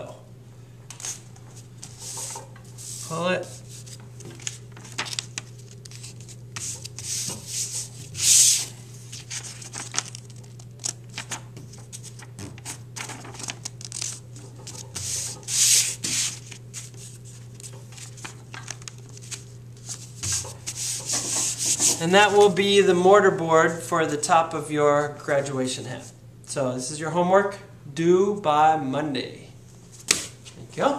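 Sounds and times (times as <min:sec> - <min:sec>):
paper rustling and rubbing: 0:01.0 - 0:22.6.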